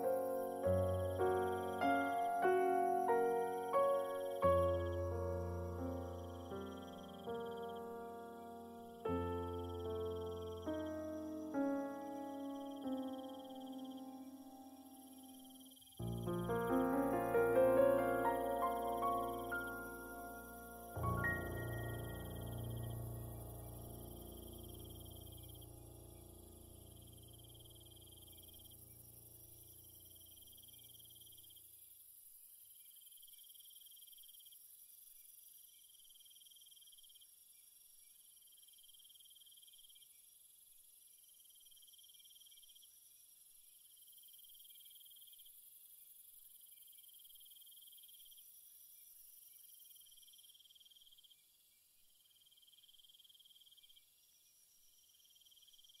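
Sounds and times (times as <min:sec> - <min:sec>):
insect trilling: 0:00.0 - 0:29.1
high insect buzz: 0:00.0 - 0:31.6.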